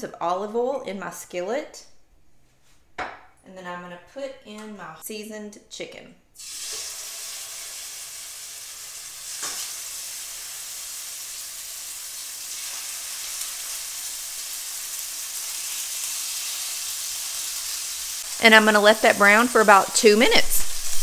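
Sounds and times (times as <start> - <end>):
chicken sizzling in oil: 6.4 - 21.0.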